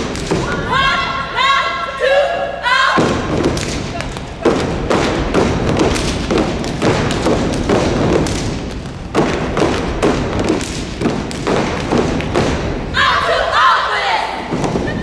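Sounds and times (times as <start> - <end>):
feet stomping on stage floor: 3.0 - 12.9, 14.5 - 15.0.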